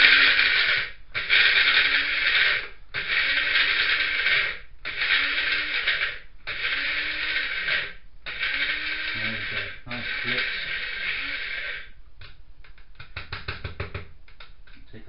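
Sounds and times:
electric spice grinder whirring: 0.0 - 12.0
motor slowing hum: 0.0 - 12.0.

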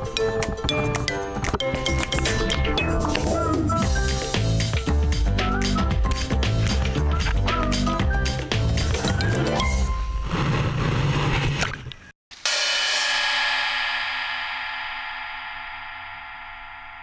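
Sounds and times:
background music with drums: 0.0 - 9.6.

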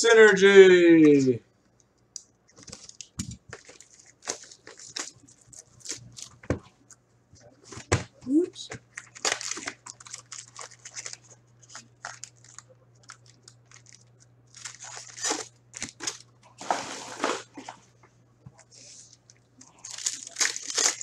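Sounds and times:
foil wrapper crinkling and tearing: 2.5 - 6.4, 8.9 - 17.5, 19.6 - 21.0.

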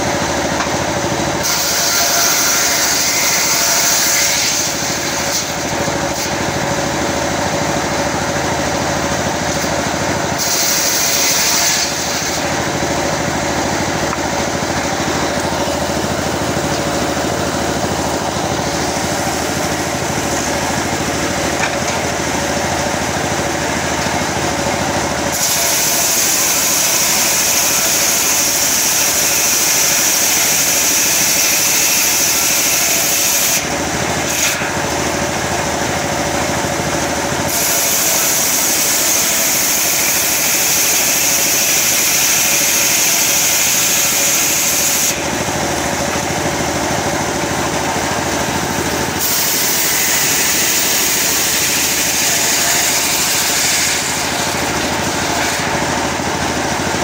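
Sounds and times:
saw blade cutting wood: 0.0 - 35.8, 37.0 - 46.3, 47.9 - 56.5
sawmill machine drone: 0.0 - 57.0.

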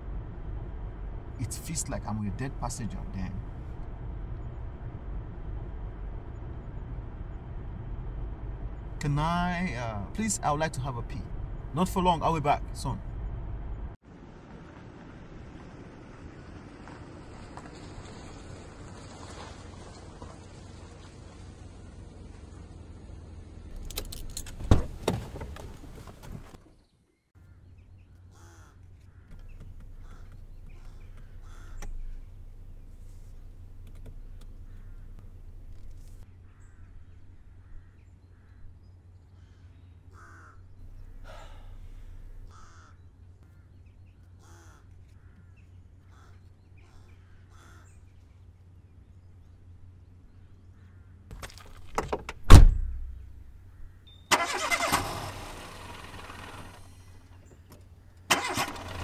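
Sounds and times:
car engine starting: 0.0 - 14.0, 15.5 - 26.6, 29.3 - 36.2, 40.8 - 42.7, 51.8 - 53.7, 54.3 - 59.0
low hum: 0.0 - 16.7, 29.3 - 36.2, 40.7 - 42.7
crows cawing: 28.3 - 29.4, 30.0 - 32.0, 39.4 - 40.7, 42.4 - 43.8, 44.4 - 48.0, 50.8 - 51.2.

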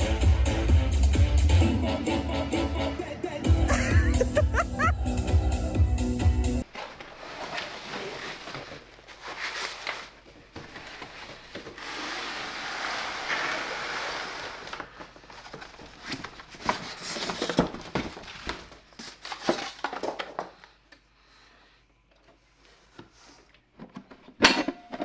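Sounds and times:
cardboard and foam rustling: 6.6 - 20.5
sliding scrape: 10.8 - 15.0.

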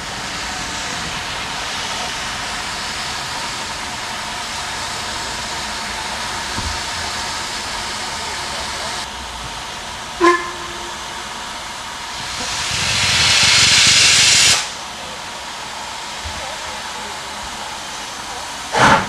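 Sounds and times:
steam locomotive hissing: 0.0 - 19.0
short low train whistle: 10.2 - 11.0
drain cocks blowing steam: 10.2 - 16.2.

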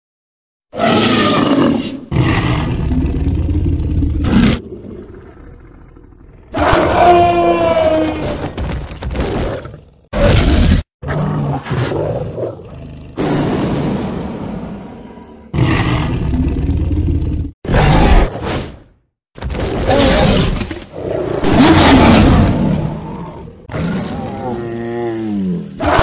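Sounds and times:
creature roars and growls: 0.7 - 18.4, 19.6 - 26.0.

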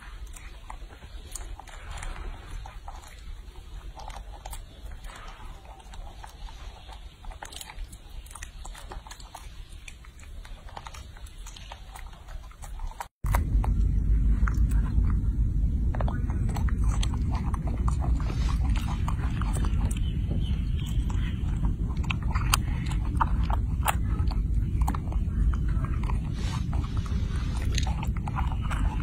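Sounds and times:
monkey chewing and smacking: 0.0 - 29.0
steady low rumble: 0.0 - 29.0.

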